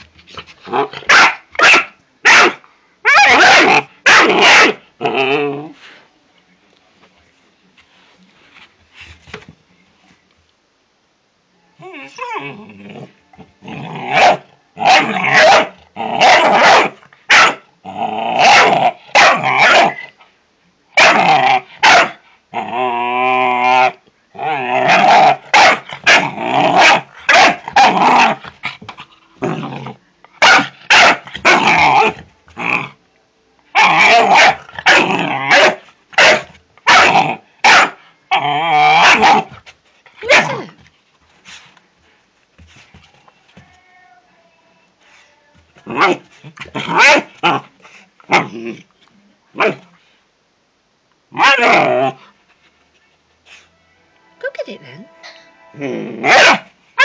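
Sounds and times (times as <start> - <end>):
puppy barking and growling: 0.6 - 5.8, 12.1 - 20.2, 21.0 - 33.0, 33.7 - 39.6, 40.2 - 40.8, 45.8 - 48.9, 49.6 - 49.9, 51.3 - 52.3, 55.8 - 57.0.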